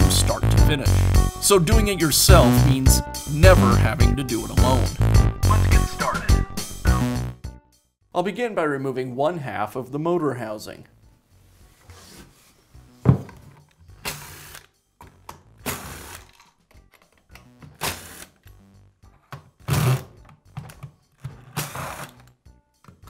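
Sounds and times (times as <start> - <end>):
light background music: 0.0 - 23.0
thunk: 13.0 - 13.4.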